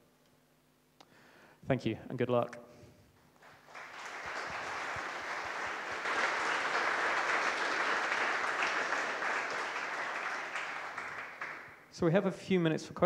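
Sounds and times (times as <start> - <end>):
audience applauding: 3.4 - 11.8.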